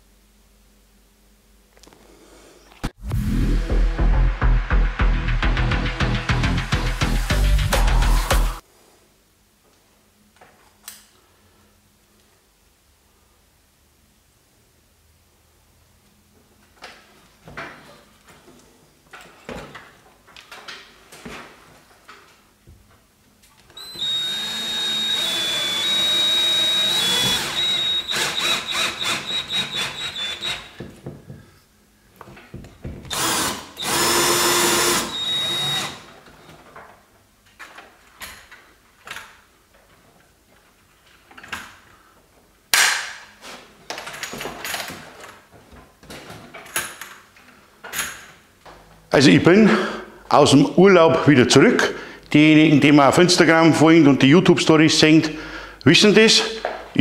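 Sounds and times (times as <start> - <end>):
drill clutch clicking: 23.8 - 30.7
cordless drill whining: 23.8 - 30.8, 33.1 - 36.2.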